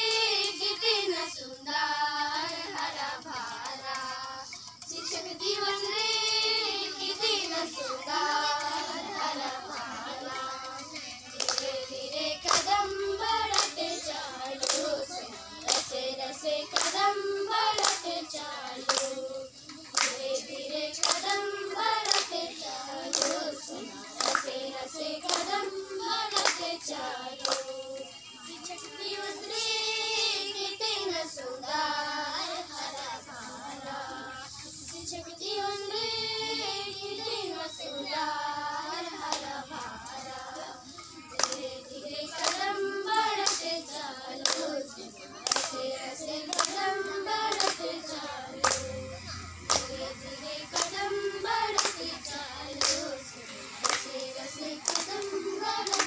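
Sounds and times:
girls singing in chorus: 0:00.0 - 0:56.0
hands clapping: 0:02.3 - 0:06.0, 0:06.6 - 0:29.6, 0:38.7 - 0:56.0.

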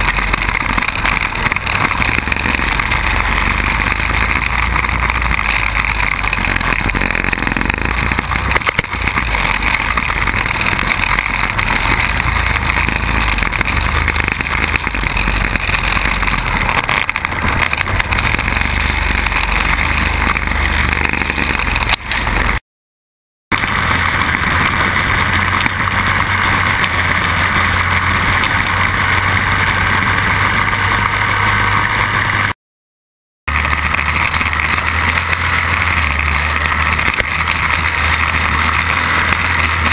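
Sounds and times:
quad bike engine running: 0:00.0 - 0:22.6, 0:23.5 - 0:32.5, 0:33.5 - 0:39.9
wind and road noise: 0:00.0 - 0:22.6, 0:23.5 - 0:32.6, 0:33.5 - 0:39.9.

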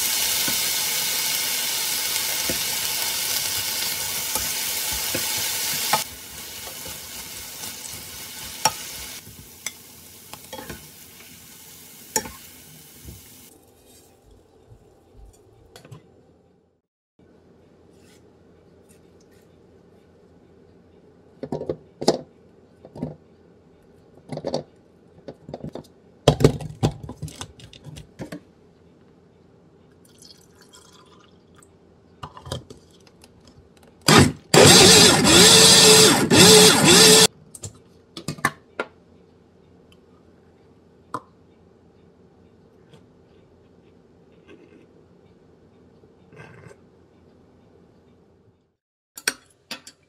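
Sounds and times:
liquid being poured: 0:30.1 - 0:31.4
blender motor whine: 0:34.1 - 0:37.3.

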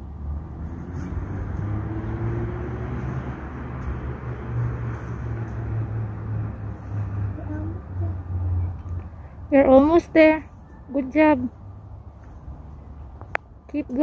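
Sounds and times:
faint rising engine tone: 0:00.0 - 0:09.2
road traffic rumble: 0:00.0 - 0:14.0
vehicle passing by: 0:00.0 - 0:14.0.

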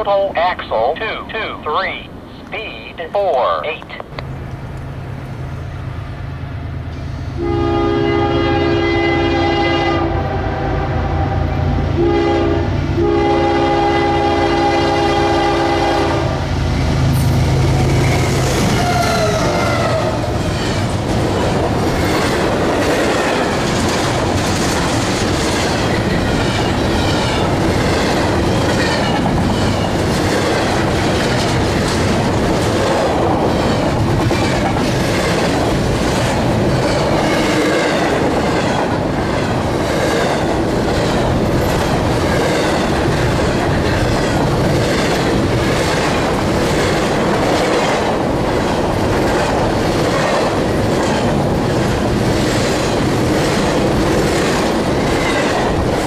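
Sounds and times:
train wheels rumbling on rail: 0:03.8 - 0:56.0
rhythmic clickety-clack: 0:20.5 - 0:56.0.

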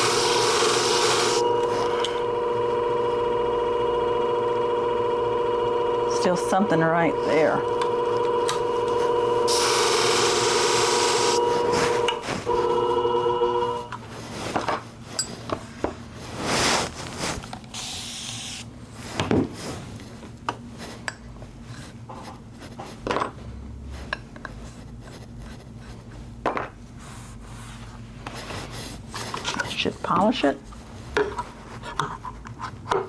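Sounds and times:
machine motor humming: 0:00.0 - 0:06.0, 0:07.2 - 0:13.9.

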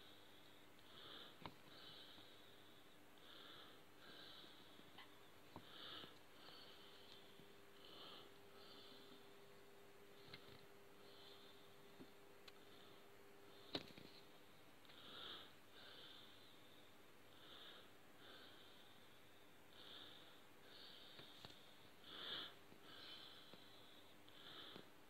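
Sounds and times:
faint breaths close to microphone: 0:00.0 - 0:25.0.

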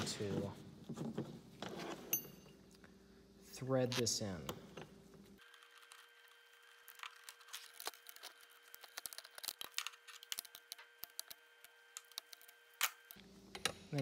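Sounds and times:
small parts clicking and rattling: 0:05.4 - 0:14.0.

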